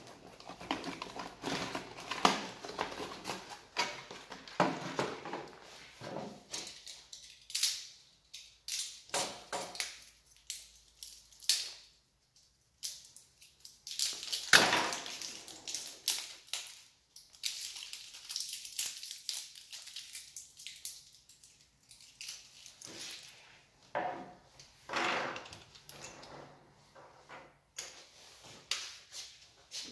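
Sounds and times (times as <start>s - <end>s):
plastic packaging crinkling: 0.0s - 5.6s, 13.0s - 23.5s.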